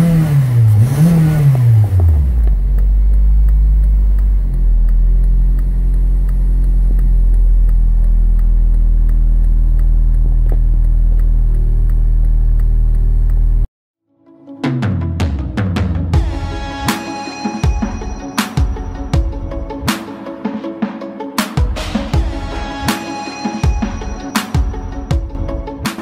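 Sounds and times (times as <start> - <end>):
car engine idling: 0.1 - 13.7
faint engine ticking: 0.6 - 13.7.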